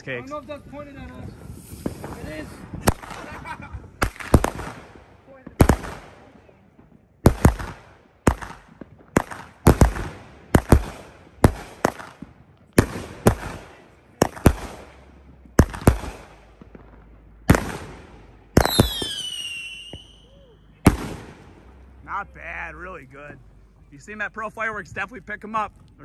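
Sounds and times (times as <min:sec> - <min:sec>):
firework cake bangs: 0:01.2 - 0:06.5, 0:07.2 - 0:21.8
firework whistles falling in pitch: 0:18.6 - 0:20.7.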